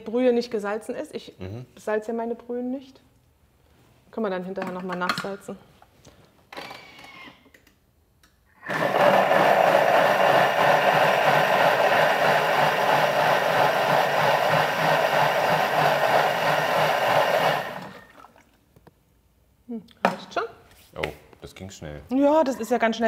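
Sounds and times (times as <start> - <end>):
blender running: 8.6 - 18.3.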